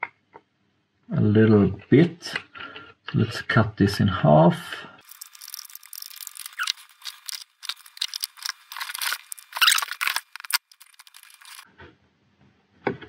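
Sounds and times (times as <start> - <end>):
scissors cutting plastic: 5.0 - 11.6.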